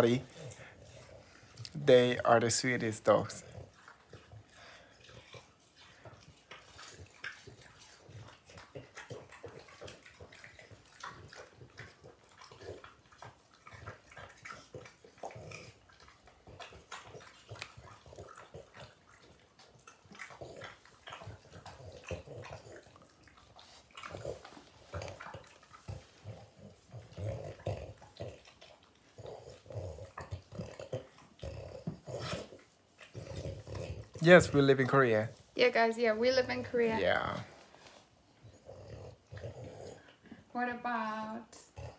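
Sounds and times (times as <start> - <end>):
dog grunting and breathing: 0.0 - 41.9
dogs chewing and smacking lips: 0.0 - 41.9.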